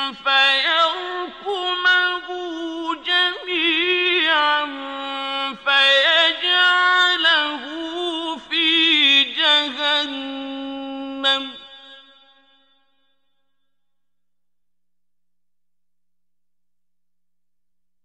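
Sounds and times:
man chanting melodically: 0:00.0 - 0:12.1.

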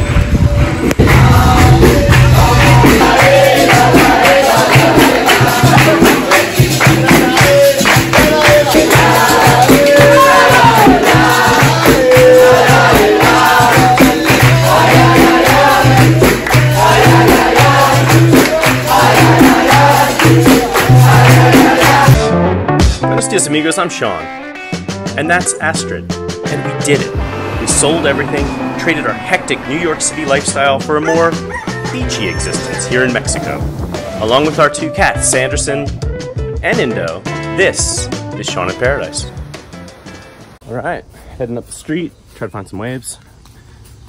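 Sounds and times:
hand clapping: 0:00.8 - 0:22.2
group singing: 0:01.0 - 0:22.2.

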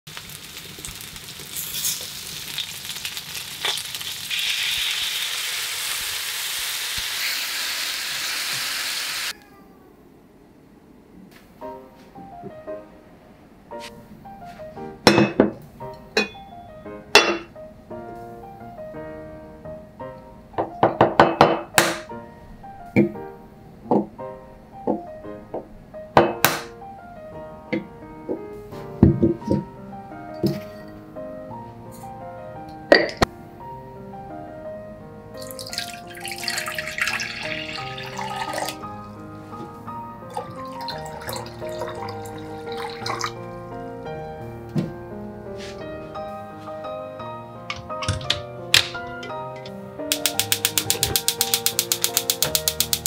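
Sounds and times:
instrumental background music: 0:13.7 - 0:53.0
water pouring into saucepan: 0:35.4 - 0:39.0, 0:40.3 - 0:43.5
saucepan and lid knocking on countertop: 0:50.2 - 0:53.0.

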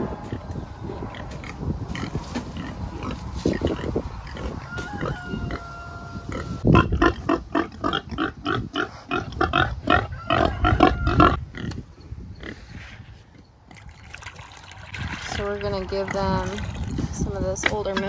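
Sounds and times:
pigs grunting: 0:06.3 - 0:11.8.

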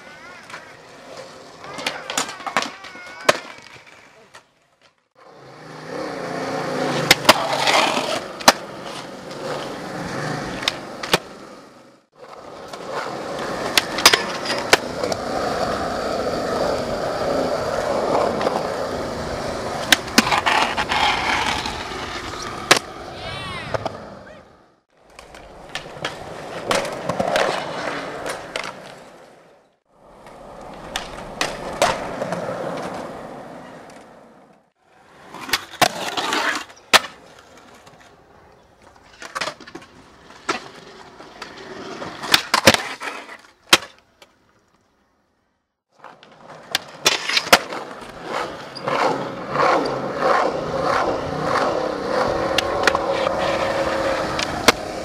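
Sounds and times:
skateboard clacks: 0:00.0 - 0:05.0, 0:30.2 - 0:34.6, 0:46.0 - 0:55.0
skateboard wheels rolling on concrete: 0:00.0 - 0:55.0.

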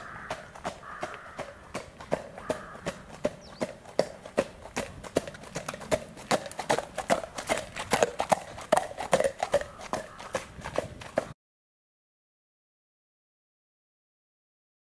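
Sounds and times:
horse hooves trotting on dirt: 0:00.0 - 0:11.4.

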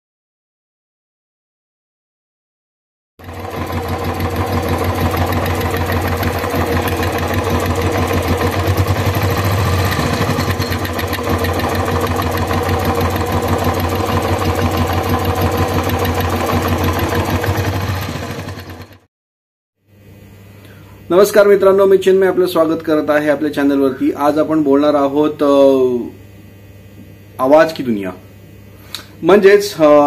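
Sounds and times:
fast ticking clatter: 0:03.2 - 0:19.0
motorcycle engine idling: 0:03.2 - 0:19.1.

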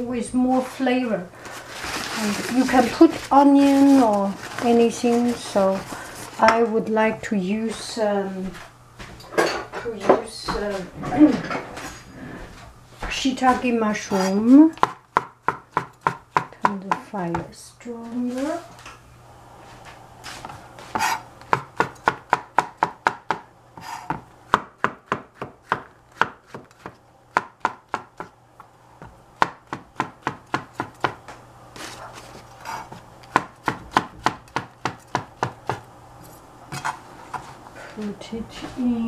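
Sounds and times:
knife chopping on cutting board: 0:14.8 - 0:17.5, 0:20.4 - 0:28.3, 0:29.4 - 0:35.8.

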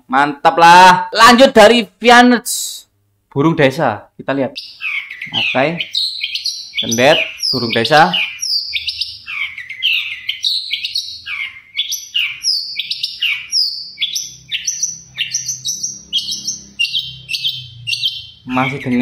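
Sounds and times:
bird singing whistled notes: 0:04.5 - 0:19.0.

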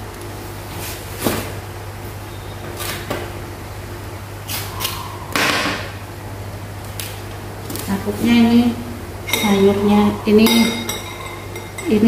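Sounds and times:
steady low hum: 0:00.0 - 0:12.0
dishes clattering: 0:09.2 - 0:12.0.

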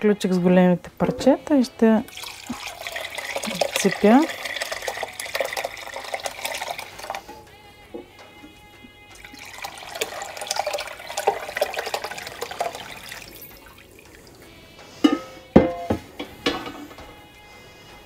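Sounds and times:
liquid pouring and splashing: 0:02.1 - 0:07.3, 0:09.1 - 0:14.5.

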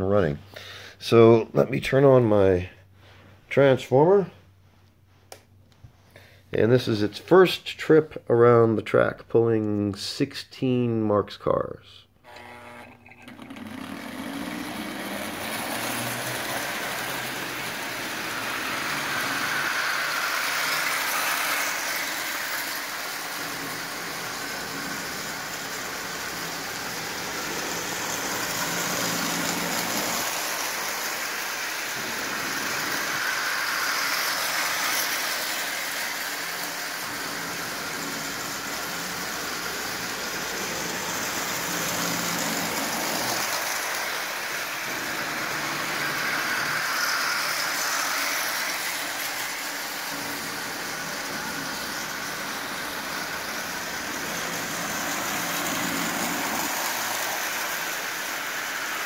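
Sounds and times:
toy train rumbling on tin rails: 0:13.2 - 0:59.0.

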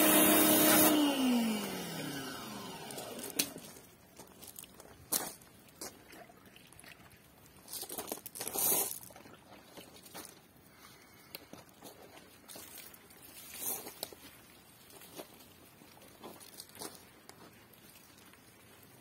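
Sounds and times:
footsteps on gravel: 0:02.7 - 0:06.0, 0:07.6 - 0:10.8, 0:11.4 - 0:17.6.

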